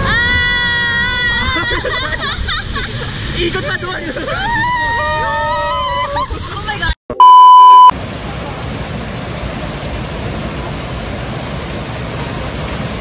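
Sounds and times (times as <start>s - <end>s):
test-tone beep: 7.2s - 7.9s.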